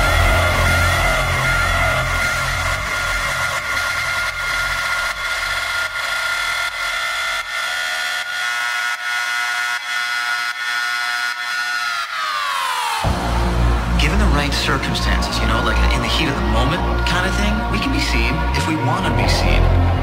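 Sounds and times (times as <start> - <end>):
distorted synth chord: 0.0 - 8.8, 13.0 - 17.7.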